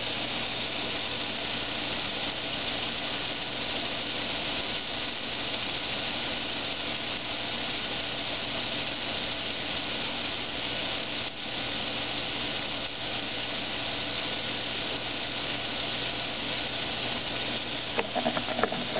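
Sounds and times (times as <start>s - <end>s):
constant hiss: 0.0s - 18.9s
small motor whirring: 17.5s - 18.9s.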